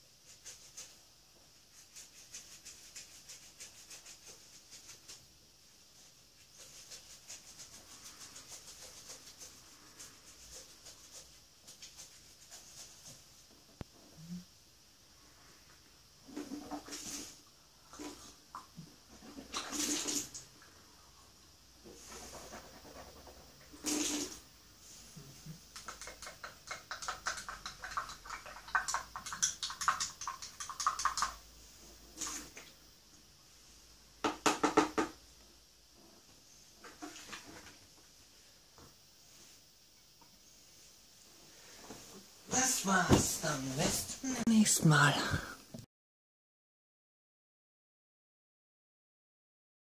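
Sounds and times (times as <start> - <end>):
toothbrush scrubbing teeth: 0.2 - 1.0, 1.7 - 5.2, 6.4 - 13.2, 25.6 - 31.4
toothbrush knocking in cup: 25.8 - 31.4.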